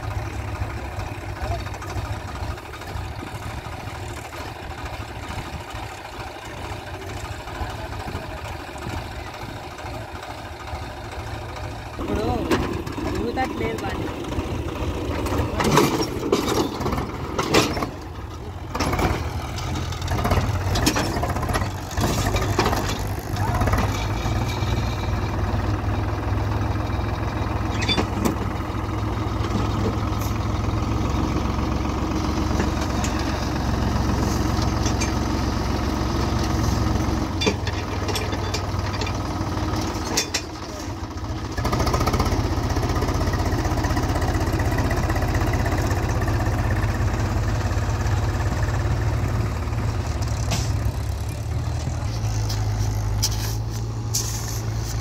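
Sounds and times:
tractor diesel engine straining: 0.0 - 55.0
knocks and clatter: 15.1 - 25.2, 37.2 - 41.0.

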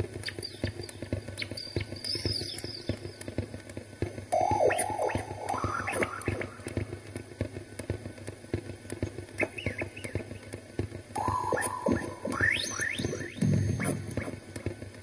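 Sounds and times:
irregular electronic clicks and crackles: 4.0 - 7.3, 8.9 - 15.0
held electronic tone: 4.1 - 7.2, 11.2 - 14.5
rising whistle-like glides: 4.1 - 7.2, 11.2 - 14.4.

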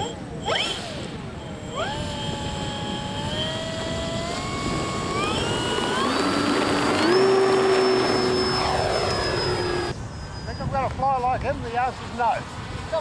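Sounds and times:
electric motor whining: 0.0 - 10.0.

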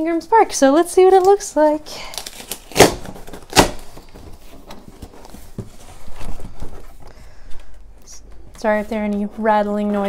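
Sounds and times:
cardboard box rustling: 1.6 - 10.0
cardboard scraping: 2.3 - 10.0.

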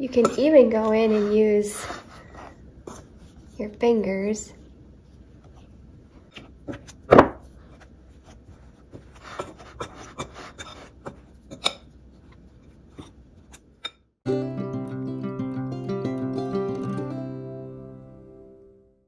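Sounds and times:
fork scraping glass bowl: 0.2 - 3.1, 9.2 - 11.8
acoustic guitar music: 14.3 - 19.0.

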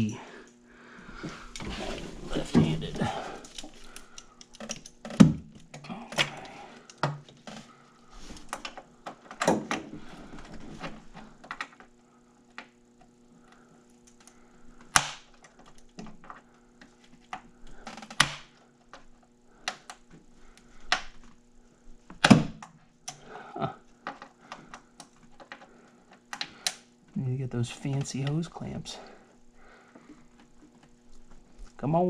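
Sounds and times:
faint steady hum: 0.0 - 32.0
clicks and knocks of tools: 3.4 - 7.5.

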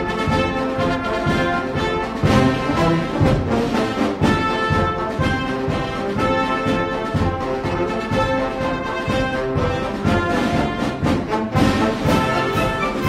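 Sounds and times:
orchestral music led by brass: 0.0 - 13.0.

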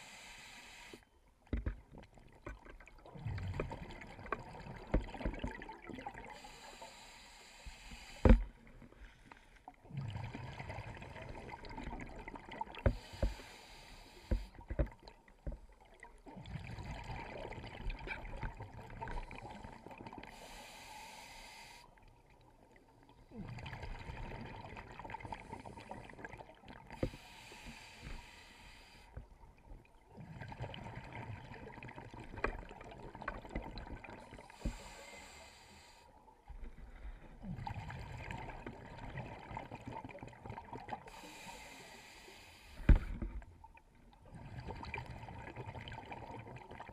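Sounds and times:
sharp clicks underwater: 0.9 - 5.7, 12.6 - 15.8.

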